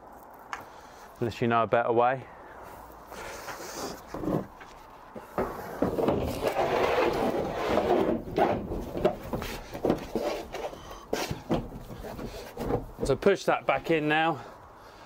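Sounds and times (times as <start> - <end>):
sheet scraping against van panelling: 3.1 - 14.0.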